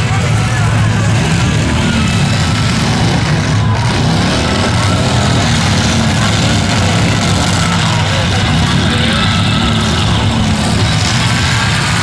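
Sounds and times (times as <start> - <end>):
pickup truck engines running: 0.0 - 12.0.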